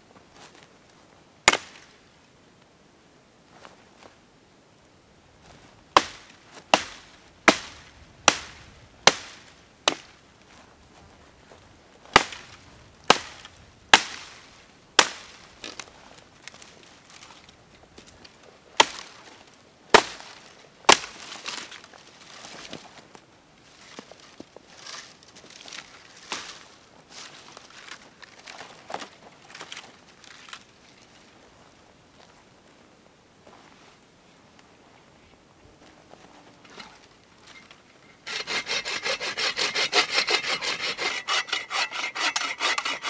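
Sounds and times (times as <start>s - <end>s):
hatchet chopping branches: 1.5s - 1.8s, 6.0s - 10.1s, 12.2s - 12.5s, 13.1s - 14.4s, 15.0s - 15.8s, 20.0s - 21.7s, 38.3s - 43.0s
branches rustling: 5.4s - 43.0s.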